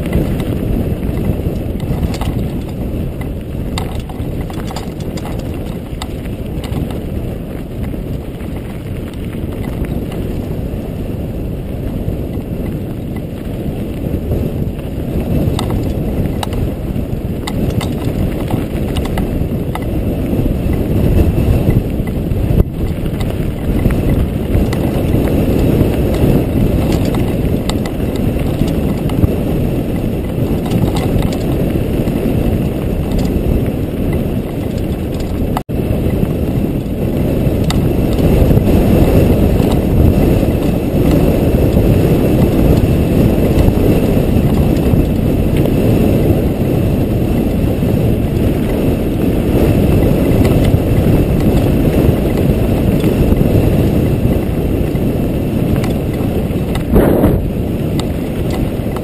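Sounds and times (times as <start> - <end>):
gravel ticking under tyres: 0.0 - 59.0
wind buffeting microphone: 0.0 - 59.0.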